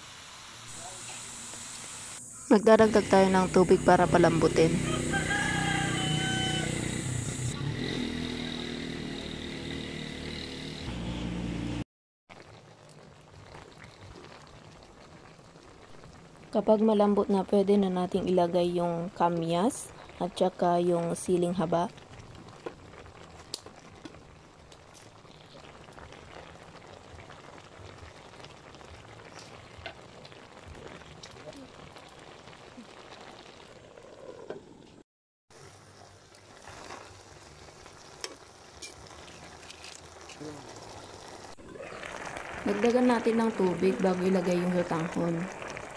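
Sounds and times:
engine running: 5.7s - 11.8s
stew bubbling in a pan: 12.3s - 45.9s.

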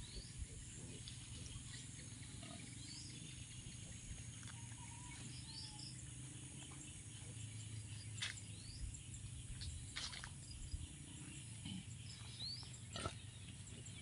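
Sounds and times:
birds chirping: 0.0s - 14.0s
faint insect hum: 0.0s - 14.0s.

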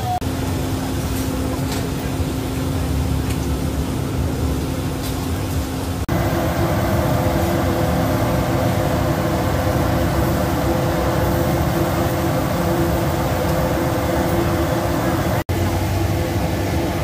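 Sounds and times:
machinery humming and hissing: 0.0s - 17.0s
low drone: 6.1s - 17.0s.

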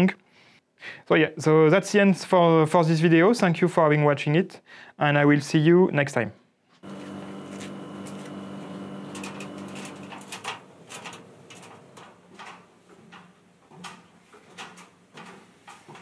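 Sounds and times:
steady hum: 6.8s - 13.6s
footsteps on metal rungs: 9.2s - 16.0s.

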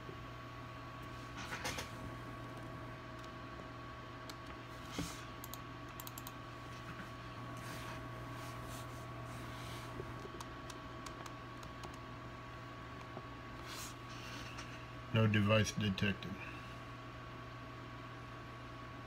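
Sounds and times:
low electrical hum: 0.0s - 19.0s
keyboard and mouse clicks: 5.4s - 6.4s, 10.2s - 12.0s.

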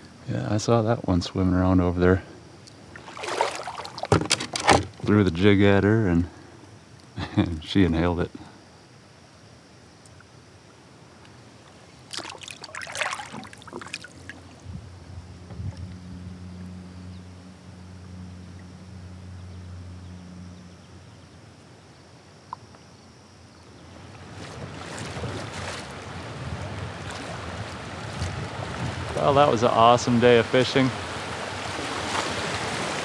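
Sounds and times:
low steady hum: 0.0s - 33.0s
water splashing: 2.7s - 5.0s, 11.6s - 14.6s, 24.0s - 33.0s
river water rushing: 2.8s - 4.1s, 11.5s - 14.6s, 23.9s - 33.0s
wind on microphone: 14.6s - 17.2s, 24.2s - 29.6s.

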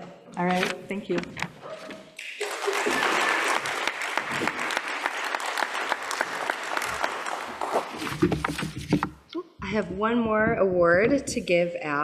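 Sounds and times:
audience applauding: 2.2s - 8.1s.

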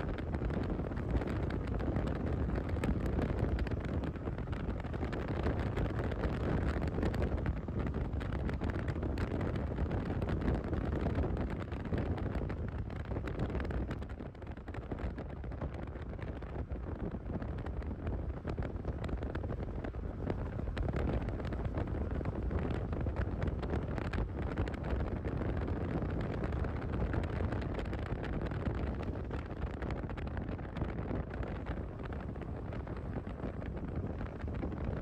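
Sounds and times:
wind rushing over microphone: 0.0s - 35.0s.

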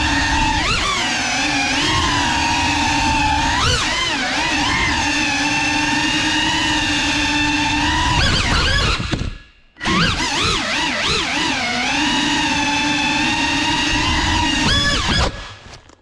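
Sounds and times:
drone motors whining: 0.0s - 15.7s.

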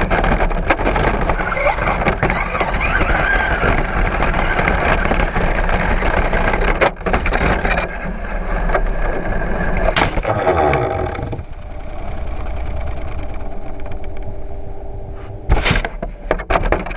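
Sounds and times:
electric motor whining: 1.3s - 6.6s, 10.2s - 15.5s.

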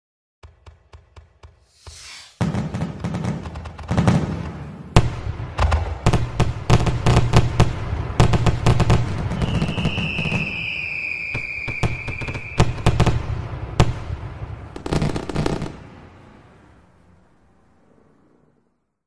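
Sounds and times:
sharp cracks and bangs: 0.4s - 16.4s
high whistling tone: 1.7s - 2.4s, 9.4s - 13.0s.

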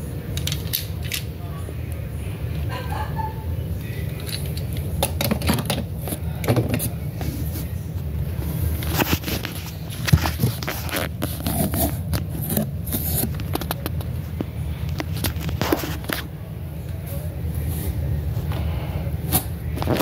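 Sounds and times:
cardboard box handling noise: 8.8s - 13.9s.

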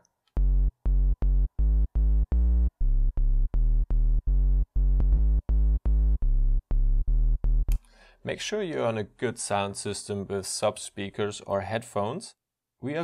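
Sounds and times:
synthesizer bass line: 0.4s - 7.8s.

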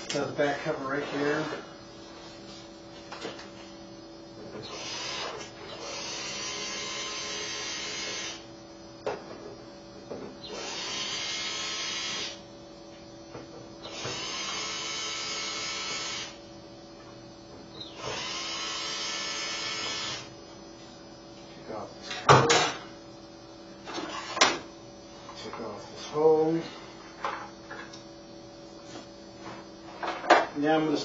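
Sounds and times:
cordless drill running: 4.6s - 8.4s, 10.5s - 12.4s, 13.8s - 16.4s, 17.8s - 20.3s.

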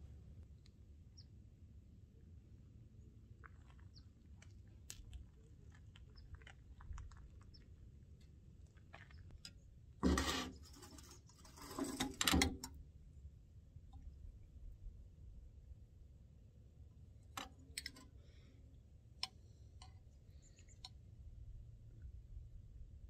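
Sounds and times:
noisy handling sounds: 9.0s - 12.8s, 17.2s - 18.2s.

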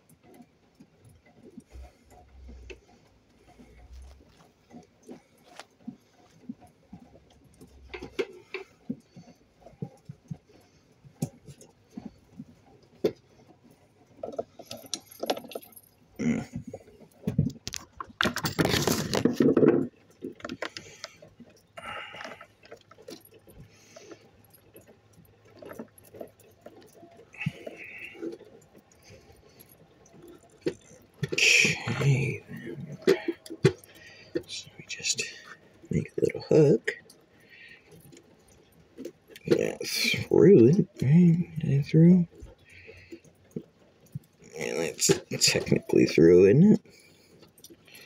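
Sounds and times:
rustling and scraping: 0.2s - 41.1s
metallic clinks and jangling: 14.2s - 17.0s.

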